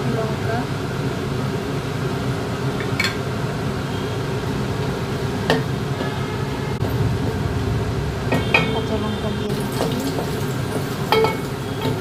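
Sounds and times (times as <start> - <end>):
steady low hum: 3.4 - 11.8
spices frying in oil: 8.3 - 12.0.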